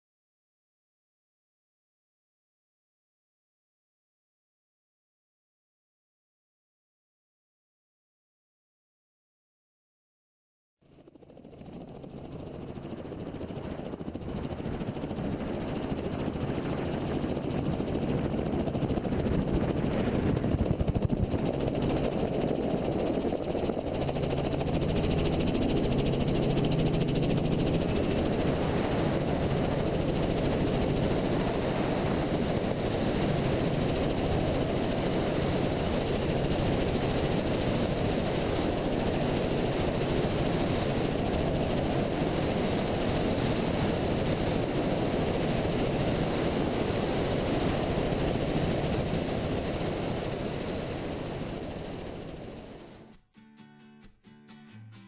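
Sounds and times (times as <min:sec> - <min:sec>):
helicopter engine and rotor: 0:10.9 - 0:53.1.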